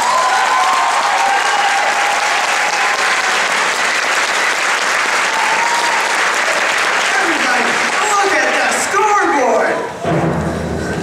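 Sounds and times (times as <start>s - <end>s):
audience applauding: 0.0s - 9.6s
people cheering: 0.0s - 10.1s.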